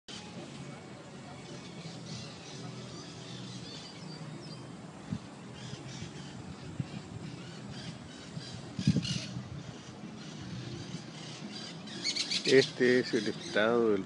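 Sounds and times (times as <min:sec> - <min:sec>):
steady background hiss: 0:00.1 - 0:14.0
bird chirps and calls: 0:05.5 - 0:13.8.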